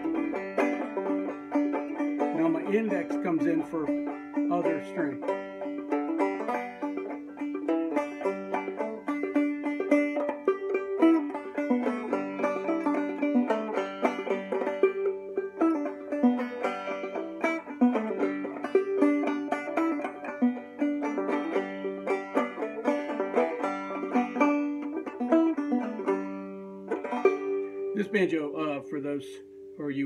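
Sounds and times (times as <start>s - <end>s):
banjo played clawhammer style: 0.0s - 30.0s.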